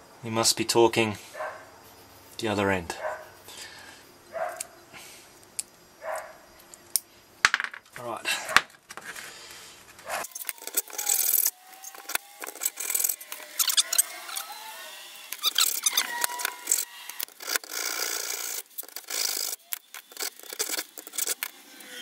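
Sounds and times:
metal scraping against wood: 8.9 - 22.0.

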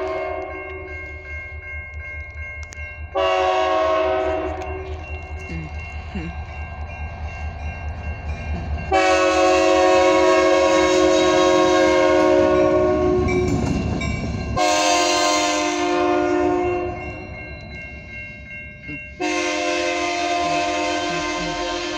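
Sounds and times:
locomotive air horn blasts: 0.0 - 0.6, 3.2 - 4.8, 8.9 - 13.4, 14.6 - 17.0, 19.2 - 21.9
locomotive rumble: 0.0 - 21.9.

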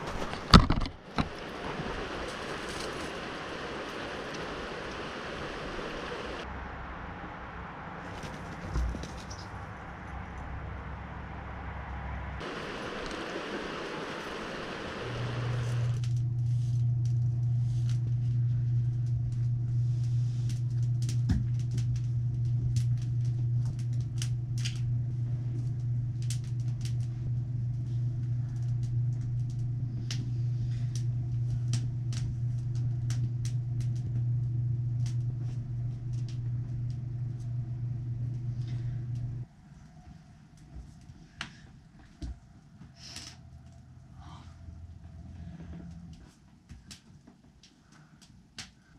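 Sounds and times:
wood fire crackling and popping: 0.0 - 6.5, 12.4 - 39.5, 45.9 - 48.9
steady low hum: 0.0 - 48.9
river rushing: 1.1 - 6.4, 12.4 - 16.0.

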